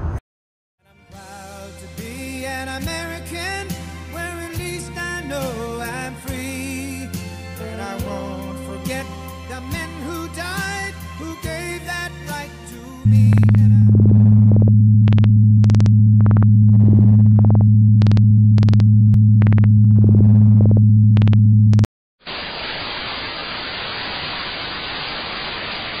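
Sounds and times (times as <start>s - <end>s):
electronic hum: 13.1s - 21.9s
regular ticks: 13.3s - 21.4s
white-noise static hiss: 22.3s - 26.0s.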